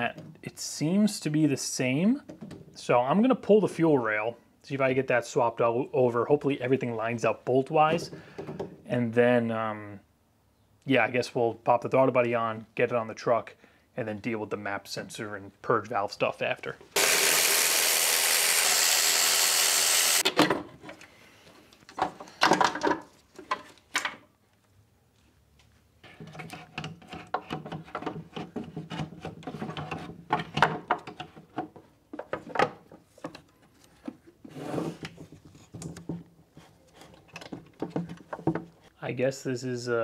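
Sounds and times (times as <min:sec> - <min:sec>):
cordless ratchet running: 0:17.0 - 0:20.2
parts knocking and rubbing: 0:26.0 - 0:38.9.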